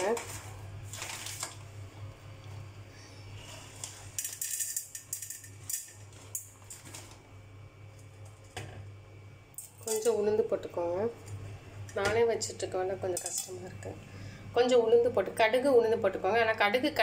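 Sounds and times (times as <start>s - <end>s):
steady low hum: 0.0s - 17.0s
kitchen utensils clinking: 9.6s - 10.2s, 13.1s - 13.7s.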